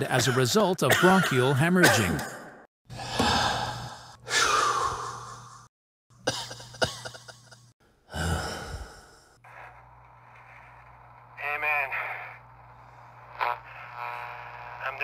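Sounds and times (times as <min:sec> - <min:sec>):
man gasping and coughing: 0:00.9 - 0:05.6.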